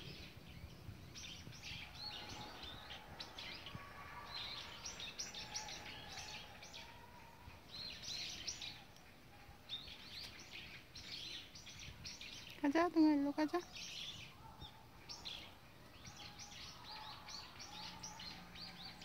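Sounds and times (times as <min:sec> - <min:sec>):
faint outdoor background noise: 0:00.0 - 0:19.0
small birds chirping: 0:00.0 - 0:19.0.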